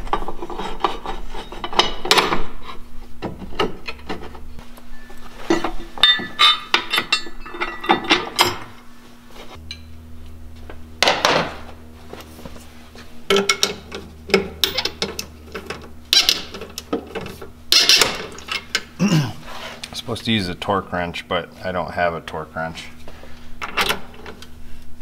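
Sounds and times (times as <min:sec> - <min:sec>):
metal bracket clinking and scraping: 0:05.4 - 0:08.7.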